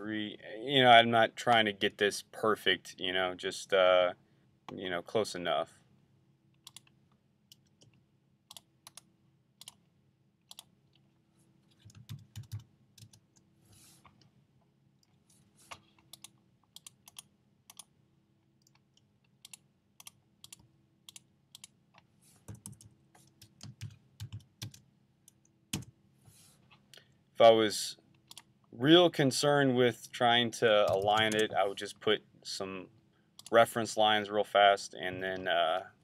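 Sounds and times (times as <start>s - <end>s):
computer keyboard keystrokes: 7.5s - 9.8s, 10.5s - 10.7s, 11.8s - 13.4s, 16.0s - 17.9s, 22.5s - 24.8s.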